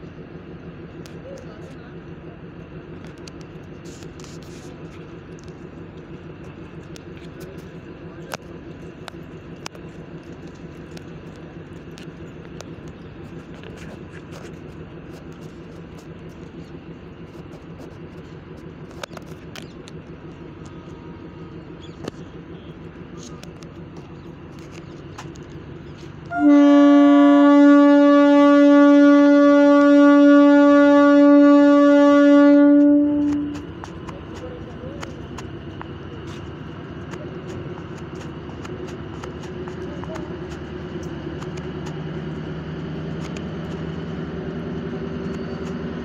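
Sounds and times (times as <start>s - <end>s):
diesel train engine idling: 0.0s - 46.0s
train air horn blast: 26.3s - 33.8s.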